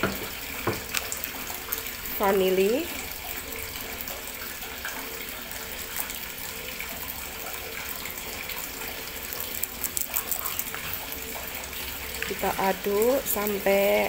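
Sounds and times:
powder sachet crinkling: 0.6 - 2.4, 7.9 - 14.0.

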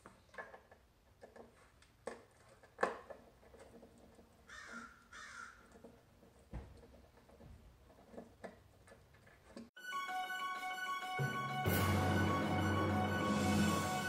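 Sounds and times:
crow cawing: 4.5 - 5.6.

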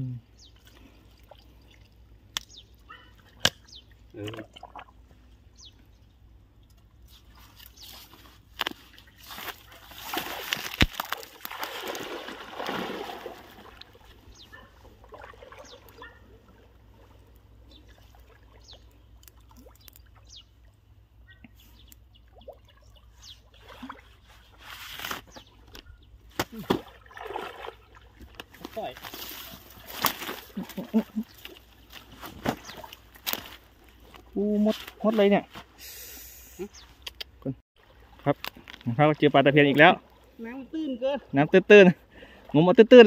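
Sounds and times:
water splashing in pond: 0.6 - 5.3, 8.8 - 21.1, 22.2 - 24.6, 26.4 - 34.2, 37.8 - 38.4.

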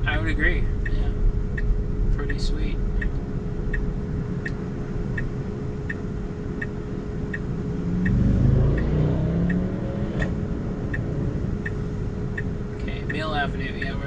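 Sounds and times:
car turn signal ticking: 3.0 - 14.0
vehicle passing: 7.8 - 13.0.

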